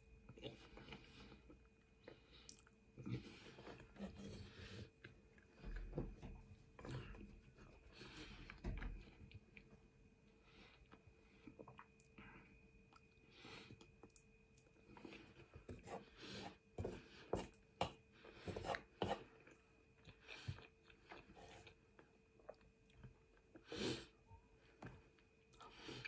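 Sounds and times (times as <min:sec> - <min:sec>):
chewing and wet mouth noises: 0:00.3 - 0:04.0, 0:10.7 - 0:12.2, 0:18.7 - 0:23.7.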